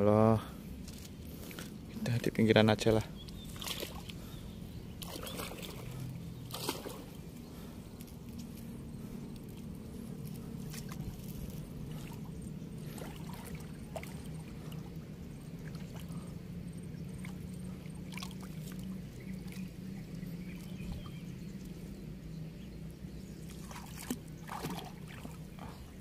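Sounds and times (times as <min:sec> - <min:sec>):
steady low rumble: 0:00.0 - 0:26.0
shallow water splashing: 0:03.4 - 0:07.7, 0:10.3 - 0:21.2, 0:23.4 - 0:26.0.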